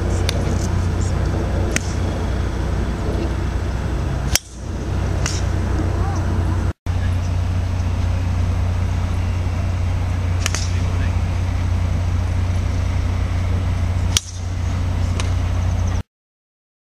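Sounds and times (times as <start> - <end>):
steady low rumble: 0.0 - 16.0
golf club striking ball: 0.1 - 2.1, 3.0 - 5.8, 9.1 - 12.8, 13.6 - 15.5.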